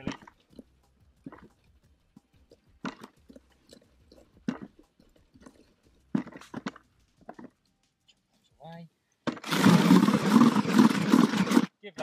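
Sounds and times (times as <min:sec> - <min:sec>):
soil scraping through a sieve: 0:09.4 - 0:11.7.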